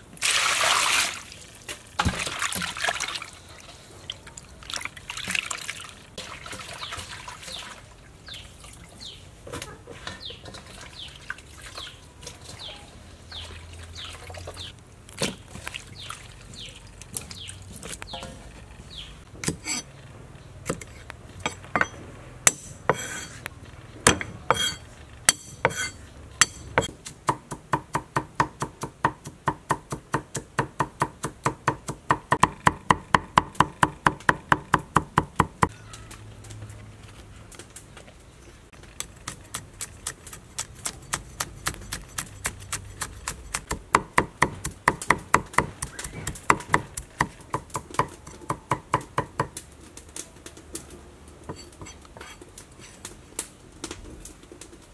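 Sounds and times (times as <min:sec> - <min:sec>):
cleaver chopping on wooden block: 0:39.5 - 0:49.5.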